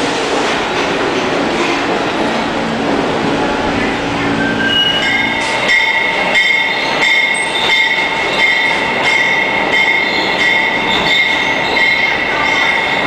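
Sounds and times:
train wheels squealing: 0:04.2 - 0:13.0.

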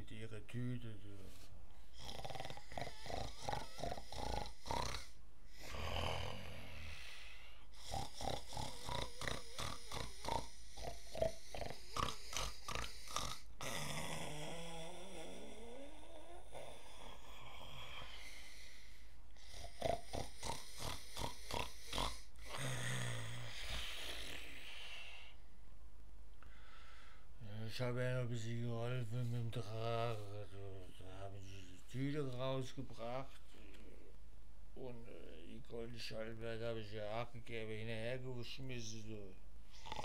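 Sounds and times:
man snoring: 0:01.9 - 0:25.4, 0:39.7 - 0:40.0.

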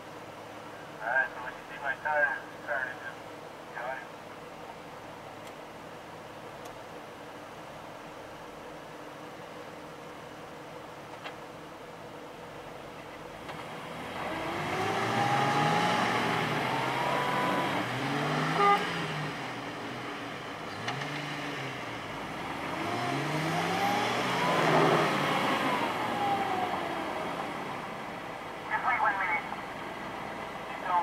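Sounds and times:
engines revving under load: 0:13.2 - 0:31.0.

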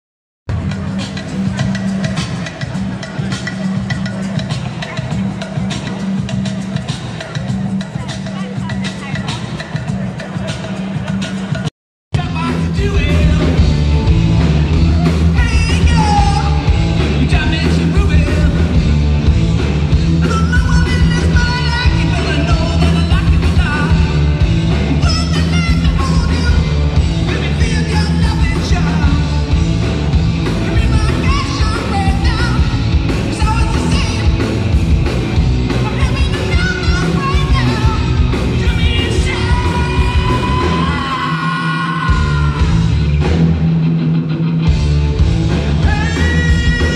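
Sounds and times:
live rock band playing: 0:00.5 - 0:46.9.

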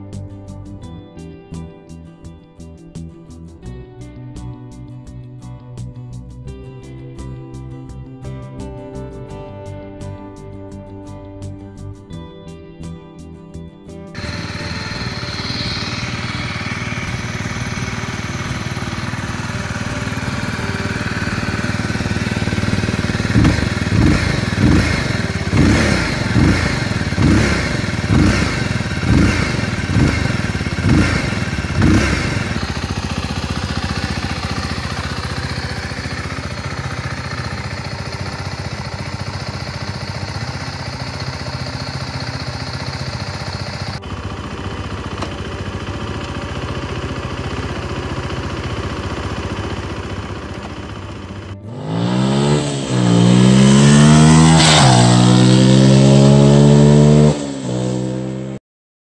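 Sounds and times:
motorcycle engine revving and idling: 0:14.1 - 0:58.6.

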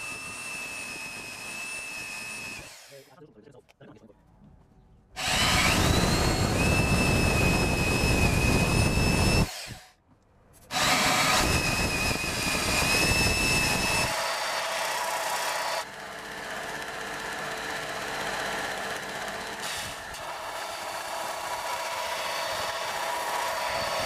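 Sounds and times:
high-pitched squeal from drill bit: 0:05.2 - 0:09.8, 0:10.8 - 0:14.2
belt grinder: 0:05.2 - 0:09.9, 0:10.7 - 0:24.0
drill press grinding through steel: 0:05.2 - 0:09.9, 0:10.7 - 0:24.0.

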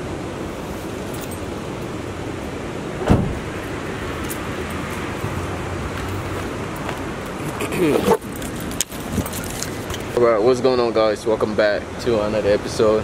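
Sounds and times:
outdoor background noise: 0:00.0 - 0:13.0
thump: 0:03.0 - 0:03.5
fishing gear clinking: 0:07.8 - 0:10.2.

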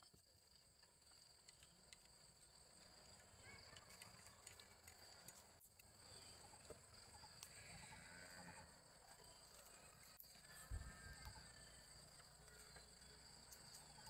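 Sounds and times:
faint clicks and rustles: 0:00.0 - 0:08.0
high insect drone: 0:00.0 - 0:14.0.

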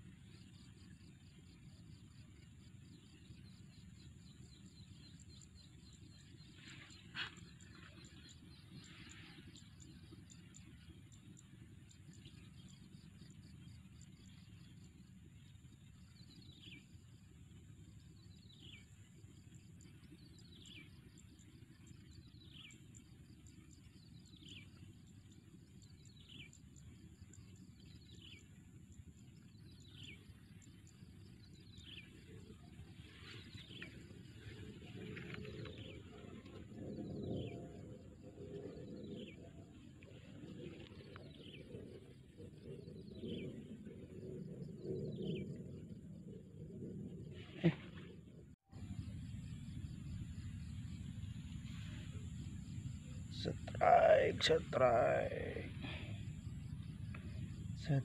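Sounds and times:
faint low rumble: 0:00.0 - 0:58.0.

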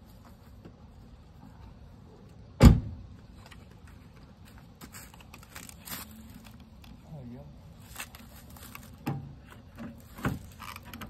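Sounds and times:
parts being handled: 0:03.2 - 0:07.0, 0:07.6 - 0:11.0.

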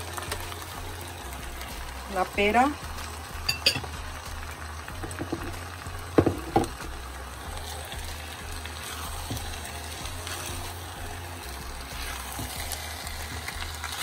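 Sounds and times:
meat and fruit sizzling in a pan: 0:00.0 - 0:14.0
spatula stirring: 0:07.5 - 0:14.0.

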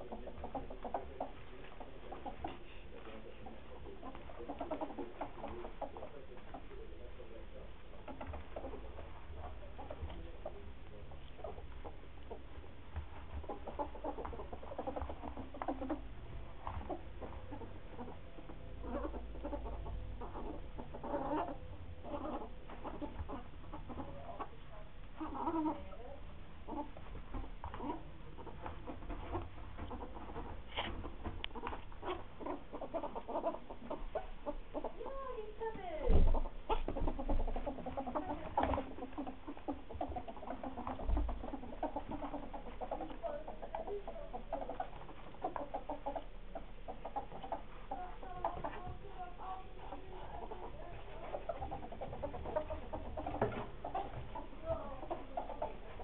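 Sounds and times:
ferrets dooking: 0:00.0 - 0:56.0
ferrets clucking chuckles: 0:13.4 - 0:26.0.

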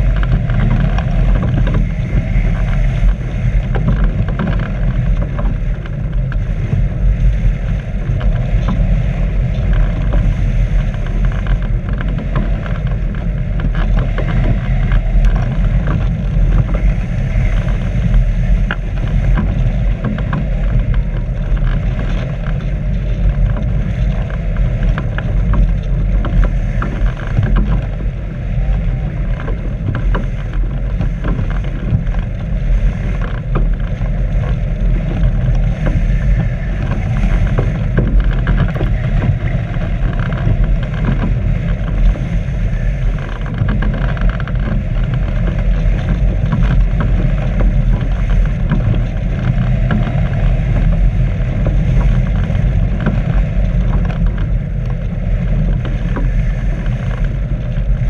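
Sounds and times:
wind rush over camera: 0:00.0 - 0:58.0.

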